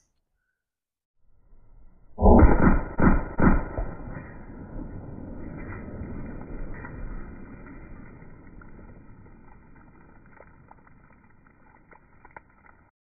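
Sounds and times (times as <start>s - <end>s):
low muffled rumble: 2.6s - 11.9s.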